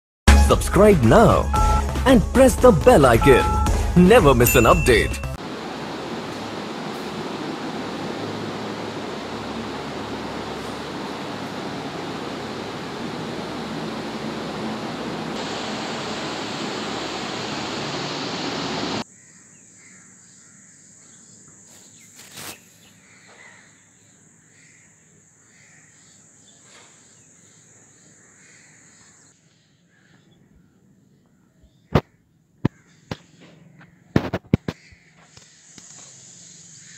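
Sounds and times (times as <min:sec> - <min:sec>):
steady high hiss: 0:02.2 - 0:19.0
loud rushing noise: 0:05.4 - 0:19.0
faint bird calls: 0:22.4 - 0:36.1.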